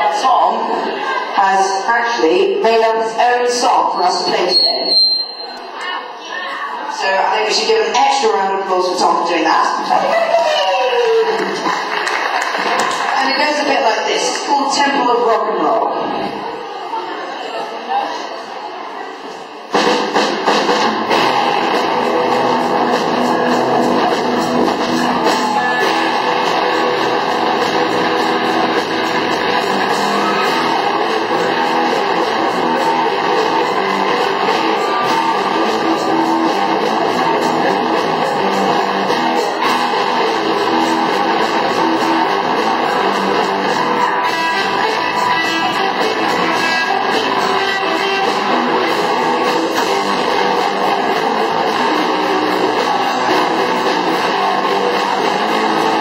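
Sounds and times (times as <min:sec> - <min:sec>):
rock band playing live: 0:19.7 - 0:56.0
strummed electric guitar: 0:19.8 - 0:56.0.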